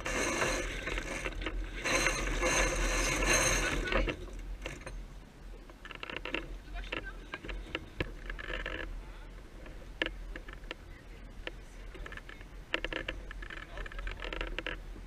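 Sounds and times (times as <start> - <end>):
sailboat hardware clicks and knocks: 0.0 - 10.8, 11.4 - 15.0
faint indistinct voices: 6.5 - 14.5.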